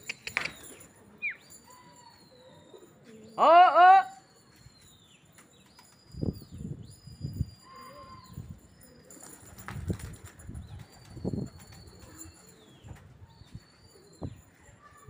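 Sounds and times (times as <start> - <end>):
pigeon wingbeats fluttering: 9.1 - 12.2.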